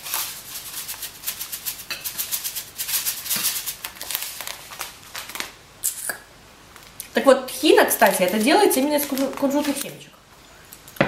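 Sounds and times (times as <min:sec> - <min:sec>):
seeds rattling in plastic bag: 0:07.9 - 0:09.9.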